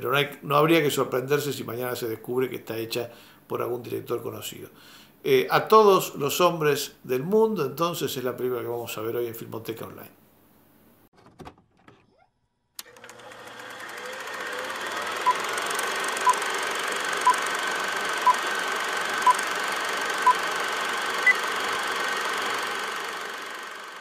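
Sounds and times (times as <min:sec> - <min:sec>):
film projector whirr and clatter: 0:12.8 - 0:24.0.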